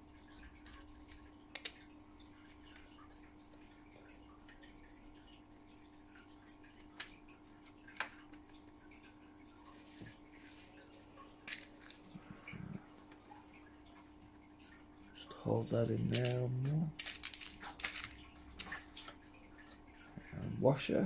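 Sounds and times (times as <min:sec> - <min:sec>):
plastic parts clicking and tapping: 0:00.6 - 0:01.8, 0:11.5 - 0:12.0, 0:16.0 - 0:18.8.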